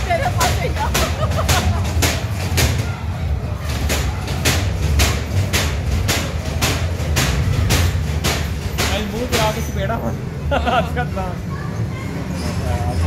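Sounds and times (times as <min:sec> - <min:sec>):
sharp track clacks: 0:00.0 - 0:02.9, 0:03.7 - 0:09.7
ride car rumbling on track: 0:00.0 - 0:13.0.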